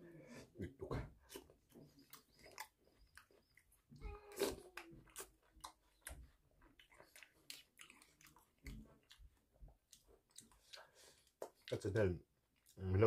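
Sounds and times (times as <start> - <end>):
quiet chewing: 0.2 - 13.0
wet mouth clicks and lip smacks: 4.4 - 11.8.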